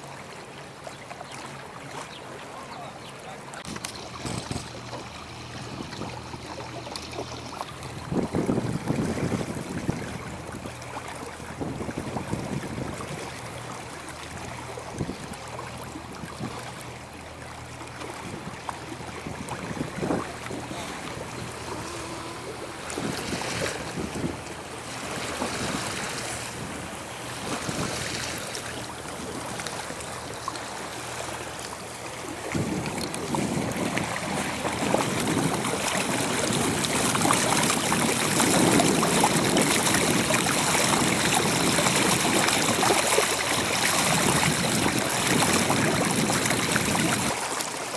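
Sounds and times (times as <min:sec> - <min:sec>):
water rushing along boat bow: 0:00.0 - 0:47.9
wind buffeting microphone: 0:03.6 - 0:10.8, 0:11.4 - 0:13.4, 0:18.2 - 0:28.3, 0:32.3 - 0:47.4.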